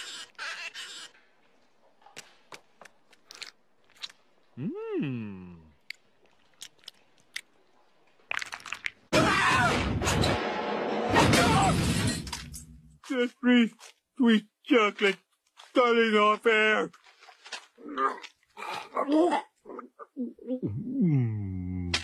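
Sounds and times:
cartoon crunching and biting: 2.2s - 4.4s, 5.7s - 7.6s, 8.2s - 9.0s.

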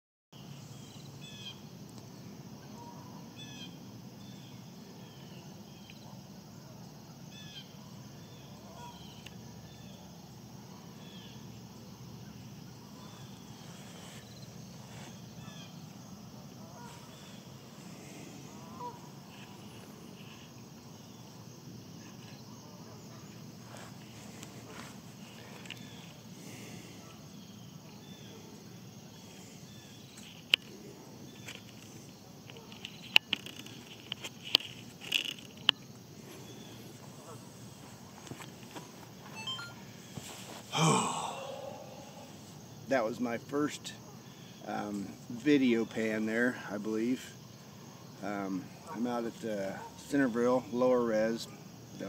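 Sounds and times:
low background noise: 0.4s - 52.0s
short bird calls: 16.6s - 21.3s.

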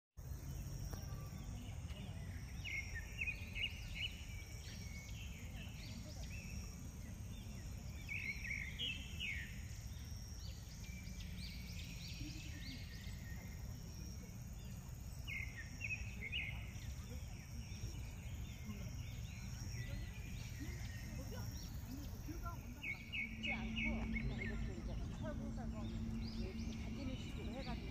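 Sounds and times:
birds chirping: 0.2s - 27.9s
steady low rumble: 19.0s - 27.9s.

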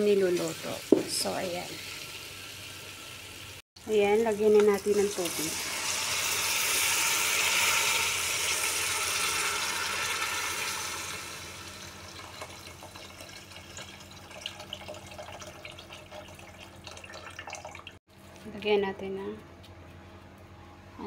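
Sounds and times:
water pouring into a metal pot: 5.0s - 18.0s.

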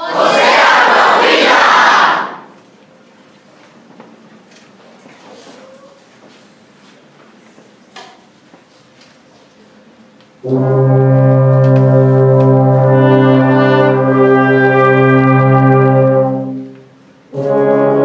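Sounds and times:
brass orchestra chord: 10.4s - 18.0s.

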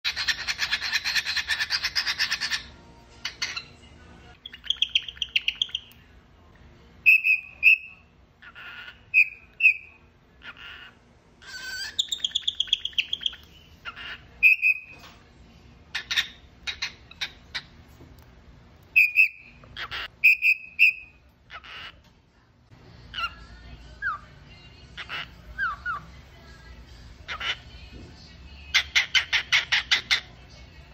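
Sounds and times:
cockatiel whistling and chirping: 0.1s - 2.6s, 4.5s - 5.9s, 7.1s - 8.0s, 8.6s - 9.9s, 11.4s - 15.0s, 18.9s - 21.1s.

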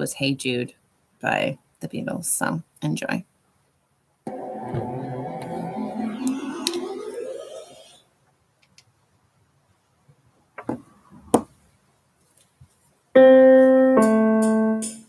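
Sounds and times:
electric keyboard chords: 4.3s - 8.0s, 13.2s - 15.0s.

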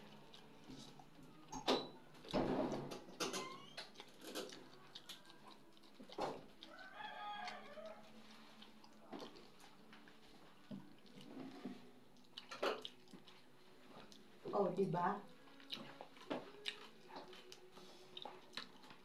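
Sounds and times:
crisp fried fish crunching: 3.6s - 10.0s
rooster crowing: 6.7s - 8.2s.

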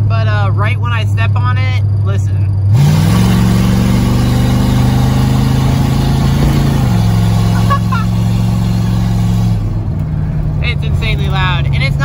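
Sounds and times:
loud car engine accelerating: 2.5s - 12.0s.

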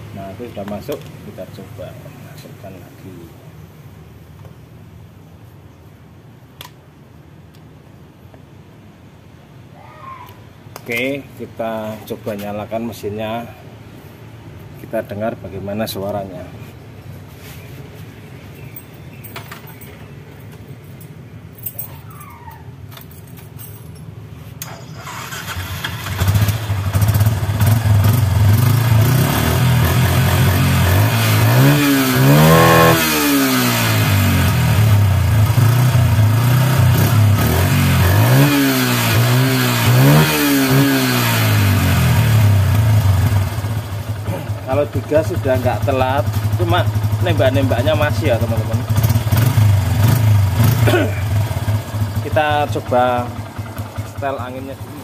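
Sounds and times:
motorcycle engine starting: 24.6s - 55.0s
engine idling with throttle blips: 42.2s - 55.0s.

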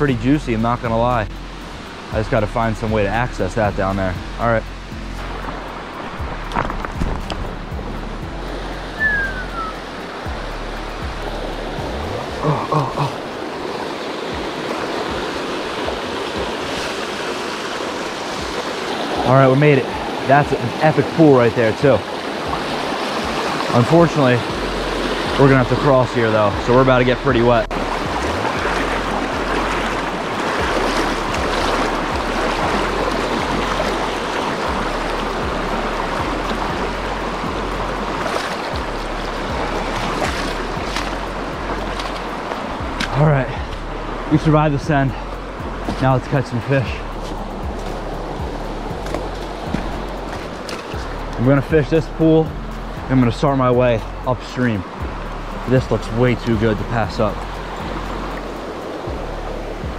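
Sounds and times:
splashes and knocks: 5.3s - 7.6s, 27.6s - 35.6s, 38.1s - 43.9s, 45.8s - 46.3s, 48.9s - 51.4s
river rapids rushing over rocks: 8.2s - 52.3s
person making short vocal sounds: 12.4s - 13.2s.

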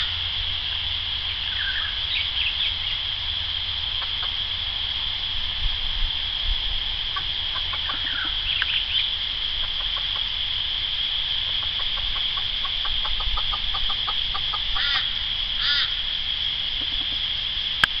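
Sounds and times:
hen clucking: 4.0s - 4.4s, 7.1s - 9.0s, 9.6s - 10.4s, 11.4s - 16.0s, 16.7s - 17.3s
hen squawking: 11.6s - 16.0s.

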